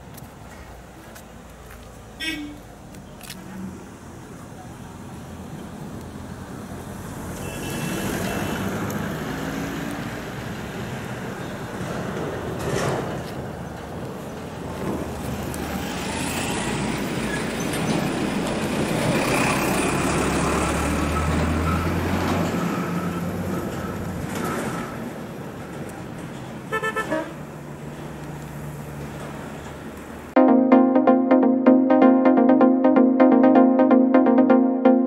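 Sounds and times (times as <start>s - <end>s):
truck engine passing: 14.6s - 25.4s.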